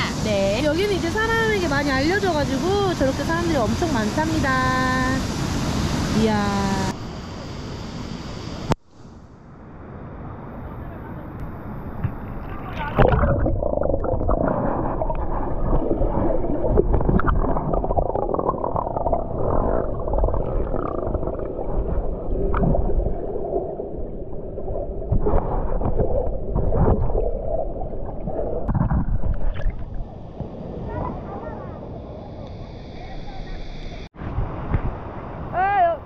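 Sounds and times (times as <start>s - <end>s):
muffled underwater stream rumble: 11.5s - 35.0s
sharp knocks underwater: 12.0s - 12.3s, 25.0s - 30.5s.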